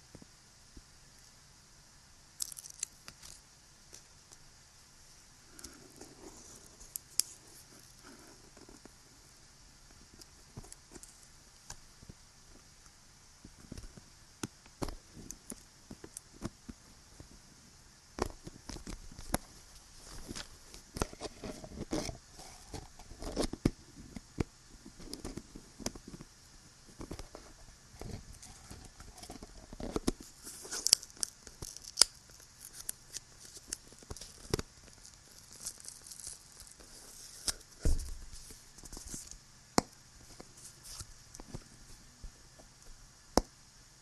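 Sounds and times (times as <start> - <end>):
steady high hiss: 0.0 - 44.0
scratching and crinkling: 5.5 - 9.3, 18.2 - 39.4, 40.2 - 42.8
dull thump: 37.8 - 38.3.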